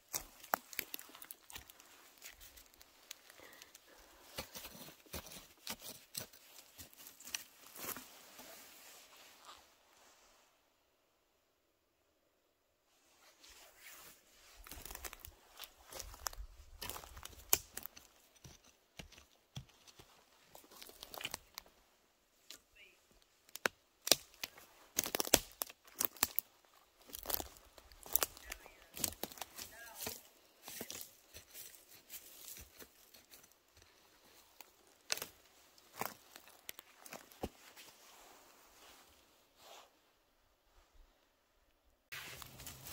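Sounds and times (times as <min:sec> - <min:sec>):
dry material crackling and rustling: 0:00.0 - 0:09.3, 0:13.8 - 0:18.7, 0:23.5 - 0:39.0, 0:42.1 - 0:42.9.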